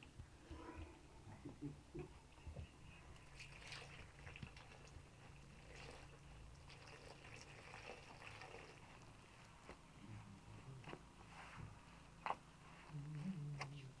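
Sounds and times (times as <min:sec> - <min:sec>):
faint water trickle: 0:03.1 - 0:09.3.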